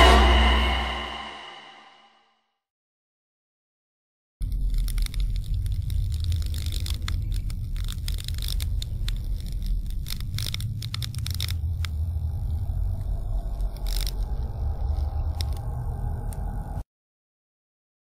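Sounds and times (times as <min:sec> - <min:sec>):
deep steady rumble: 0:04.4 - 0:16.8
sharp crackling clicks: 0:04.4 - 0:16.8.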